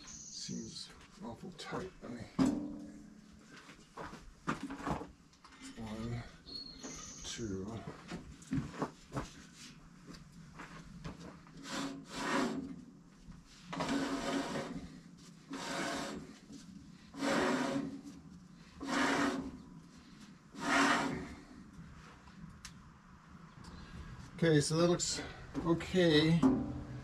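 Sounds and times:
saw blade scraping: 0:11.6 - 0:12.6, 0:13.8 - 0:14.9, 0:15.5 - 0:16.4, 0:17.1 - 0:18.1, 0:18.8 - 0:19.6, 0:20.6 - 0:21.5.

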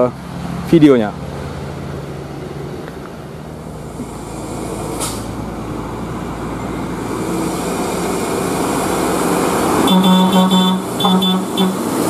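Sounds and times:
diesel truck engine approaching: 0:00.0 - 0:12.0
short air hiss: 0:04.8 - 0:05.4.

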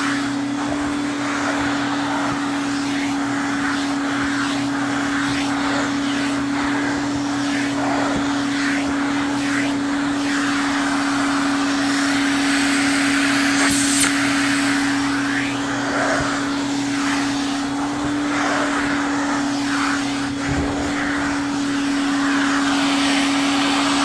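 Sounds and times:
rush of air through nozzle: 0:00.0 - 0:24.0
vacuum cleaner motor hum: 0:00.0 - 0:24.0
sharp hiss: 0:13.3 - 0:15.6.

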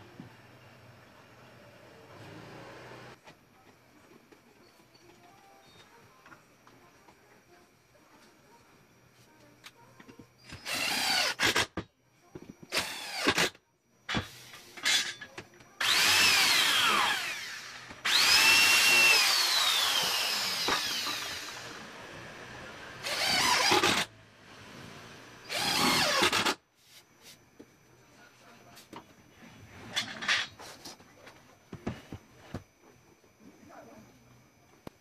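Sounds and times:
power drill drilling into wood: 0:10.6 - 0:11.7, 0:12.7 - 0:13.5, 0:15.8 - 0:22.0, 0:23.0 - 0:24.1, 0:25.5 - 0:26.6.

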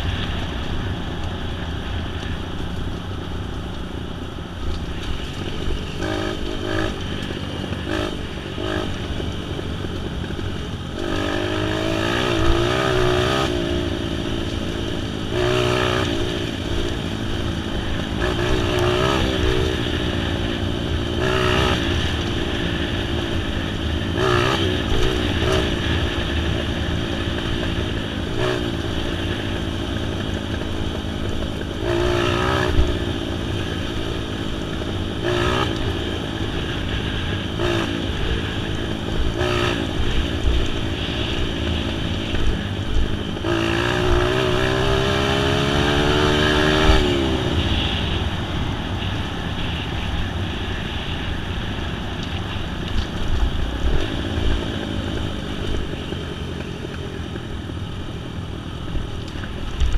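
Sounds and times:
vehicle engine revving: 0:04.9 - 0:50.1.

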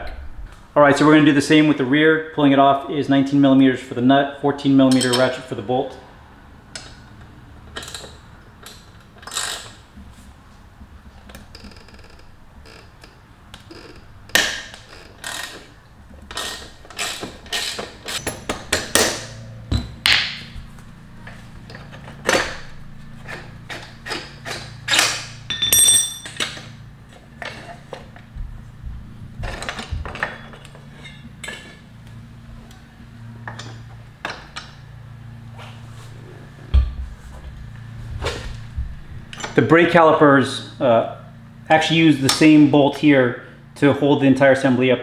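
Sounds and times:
wrench and metal parts clanking: 0:04.9 - 0:05.4, 0:16.3 - 0:20.2, 0:23.7 - 0:26.8, 0:29.5 - 0:31.8
ringing metal note: 0:25.5 - 0:26.4.

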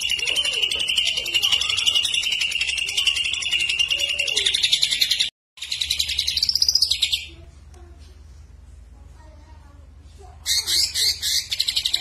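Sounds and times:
bird singing buzzy trill: 0:00.0 - 0:07.4.

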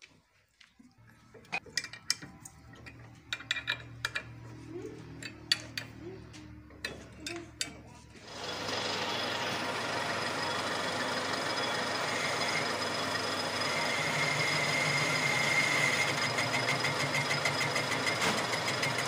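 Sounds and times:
metal lathe running: 0:08.2 - 0:19.0.

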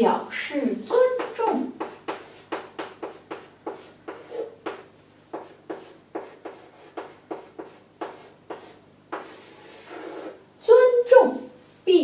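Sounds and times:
chalk tapping and scraping on chalkboard: 0:00.9 - 0:10.4.

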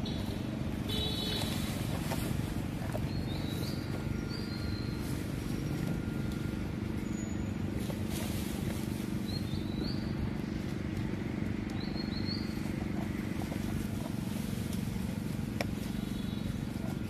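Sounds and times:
bird chirps: 0:03.0 - 0:07.7, 0:11.7 - 0:12.9.

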